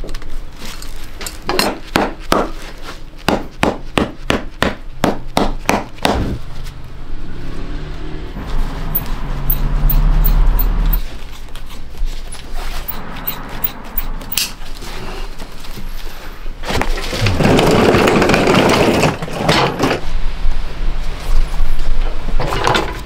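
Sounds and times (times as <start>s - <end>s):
leather scraping and rubbing: 10.2s - 16.4s.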